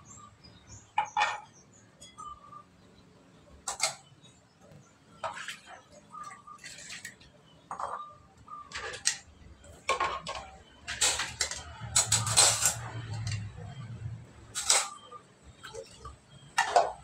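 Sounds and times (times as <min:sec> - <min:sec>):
dishes clinking and clattering: 0:00.9 - 0:02.4, 0:03.6 - 0:04.1, 0:05.2 - 0:13.8, 0:14.5 - 0:17.0.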